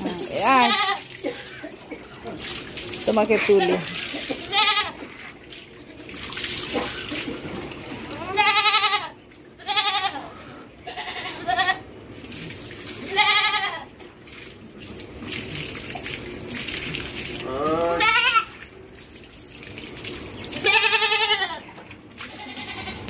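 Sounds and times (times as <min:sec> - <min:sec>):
goat bleating: 0:00.4 - 0:01.0, 0:03.6 - 0:05.2, 0:08.1 - 0:11.9, 0:13.0 - 0:13.9, 0:17.4 - 0:18.5, 0:20.6 - 0:23.0.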